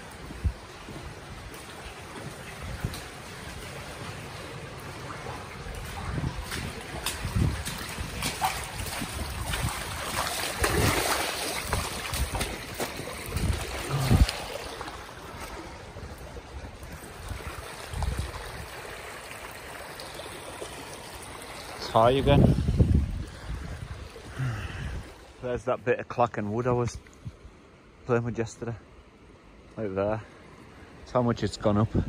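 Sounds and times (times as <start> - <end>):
floodwater rushing in river: 0.0 - 32.0.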